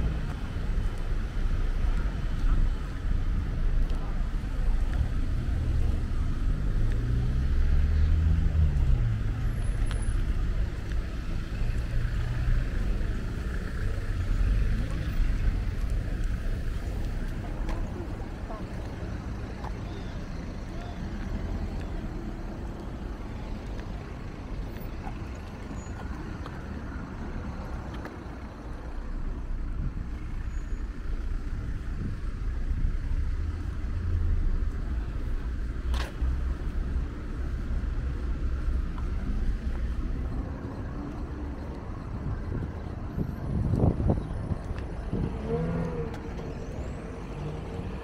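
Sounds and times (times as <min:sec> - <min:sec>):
rumble of passing cars: 0:00.0 - 0:48.0
car engine accelerating: 0:04.8 - 0:16.9, 0:43.2 - 0:48.0.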